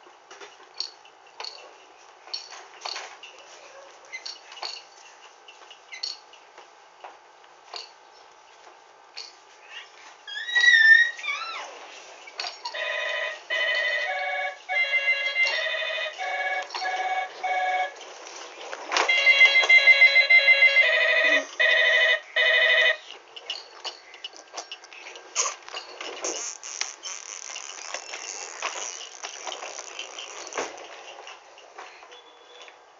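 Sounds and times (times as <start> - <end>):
electronic toy beeping melody: 12.7 - 18.0, 19.1 - 23.0.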